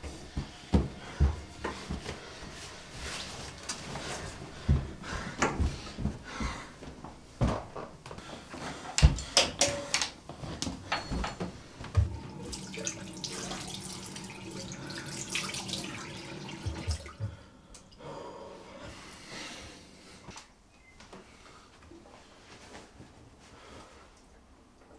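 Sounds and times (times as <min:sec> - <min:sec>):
tap running into sink: 0:12.0 - 0:17.4.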